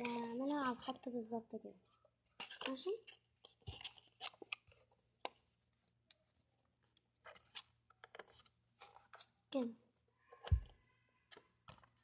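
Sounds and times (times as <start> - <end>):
paper rustling and crinkling: 2.4 - 9.4.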